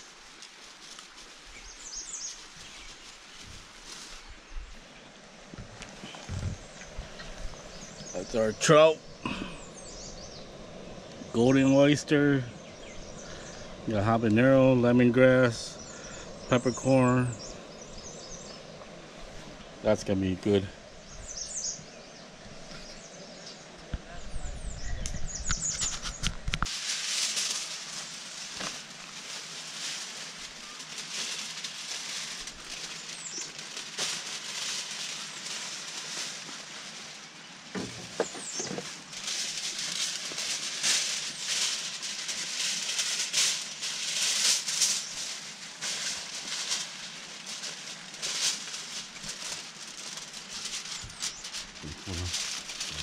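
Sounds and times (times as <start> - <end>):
aluminium foil crinkling: 0.0 - 4.4, 25.5 - 53.0.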